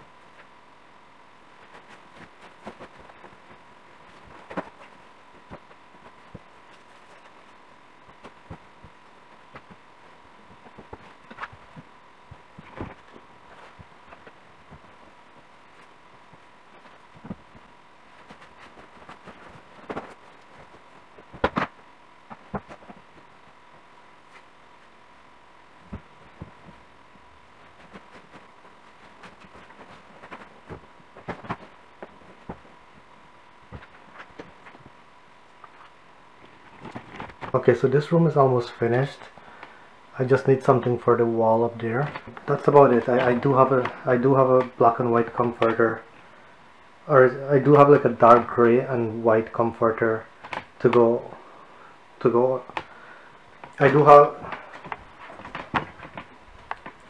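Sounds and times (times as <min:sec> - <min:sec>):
fabric rustling: 0:01.5 - 0:25.0, 0:25.8 - 0:35.0.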